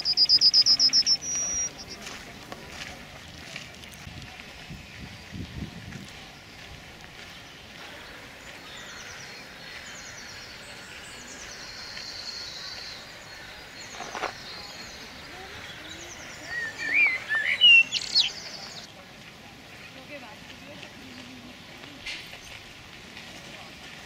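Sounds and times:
songbirds trilling and chirping: 0.0s - 3.7s, 4.4s - 22.9s.

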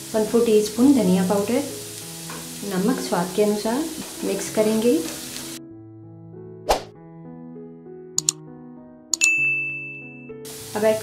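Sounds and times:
soft background music: 0.0s - 11.0s
mouse clicks: 8.2s - 8.4s.

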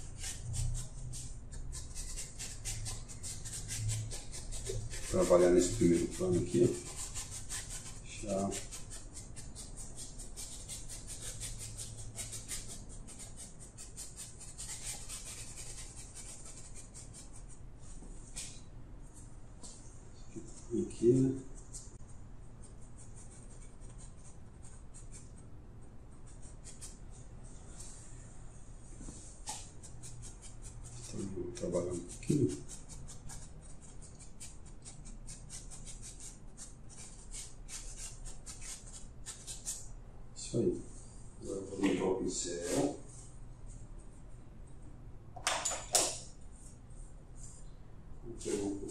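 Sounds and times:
paintbrush scratching on canvas: 0.0s - 18.4s, 22.5s - 25.5s, 29.0s - 39.9s
paintbrush strokes on canvas: 26.3s - 34.3s, 41.6s - 43.8s.

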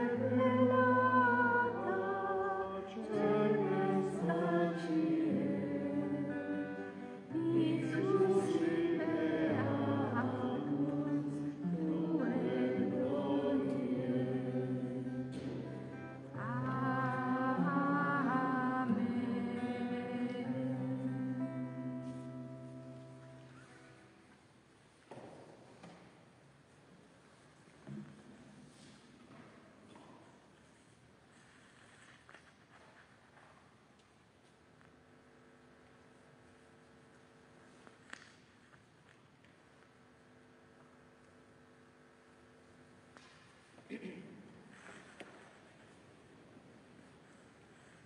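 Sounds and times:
choir singing: 0.0s - 22.0s.

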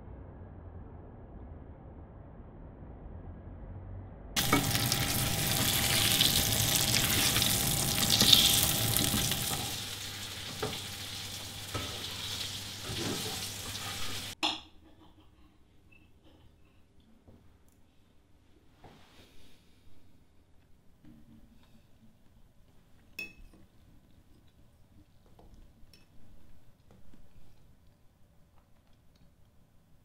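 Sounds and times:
food sizzling in a frying pan: 4.4s - 14.4s.

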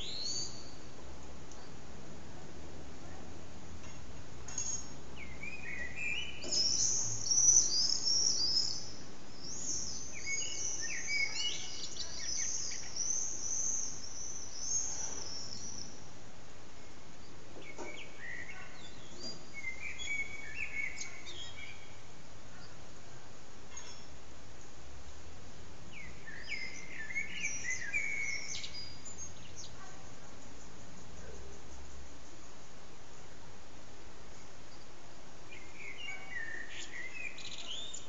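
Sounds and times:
blackbird singing: 0.0s - 0.8s, 4.6s - 16.1s, 16.8s - 22.8s, 25.9s - 32.6s, 35.5s - 38.0s
low background noise: 0.0s - 38.0s.

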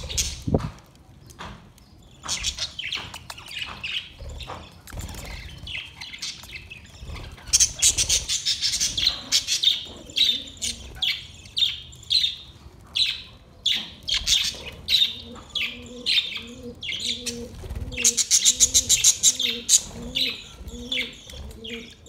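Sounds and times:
budgerigars chirping and chattering: 2.2s - 22.0s.

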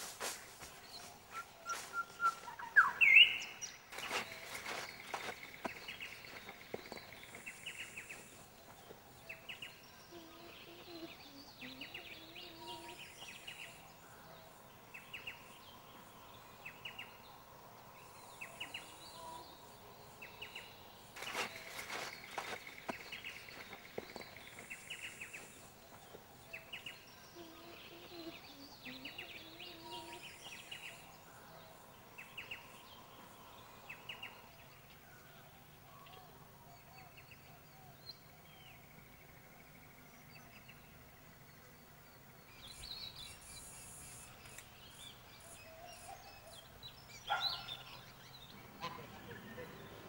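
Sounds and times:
bird chirps and calls: 0.9s - 8.3s
faint hiss: 42.5s - 46.3s.

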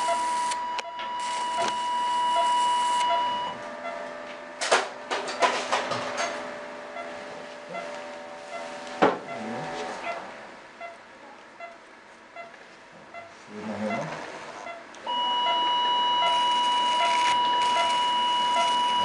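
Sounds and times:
high steady beep tone: 0.0s - 3.6s, 14.7s - 19.0s.

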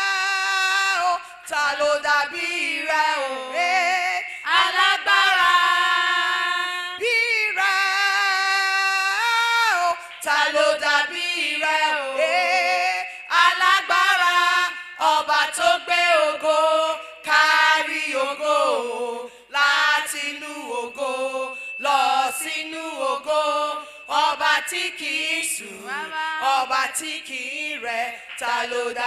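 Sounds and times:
voices singing gospel chorus: 0.0s - 29.0s.

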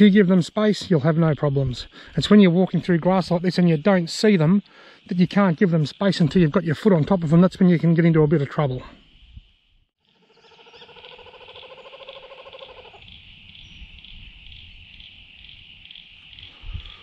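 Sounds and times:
kookaburra calling: 10.1s - 17.0s.

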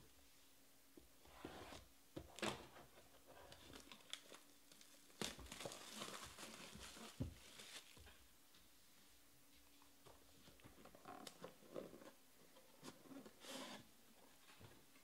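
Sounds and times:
plastic wrap crinkling: 3.5s - 8.1s.

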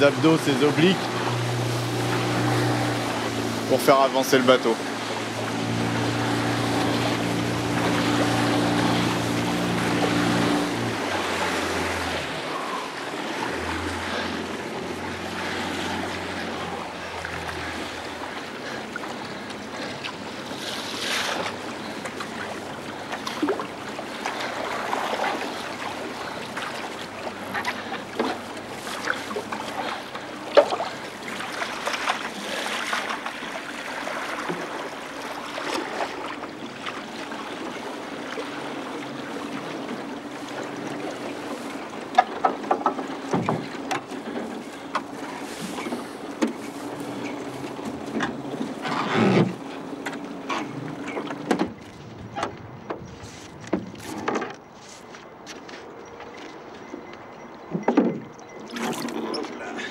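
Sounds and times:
boat engine running low: 0.0s - 59.9s
water lapping around hull: 0.0s - 59.9s
short knocks and splashes: 15.3s - 37.7s, 39.5s - 54.6s, 57.7s - 59.9s.

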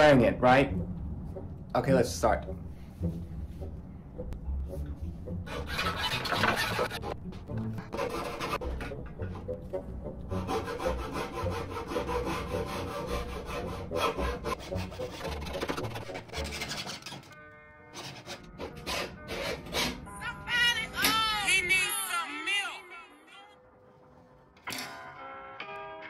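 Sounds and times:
hacksaw cutting wood: 5.5s - 9.5s, 10.3s - 20.1s.

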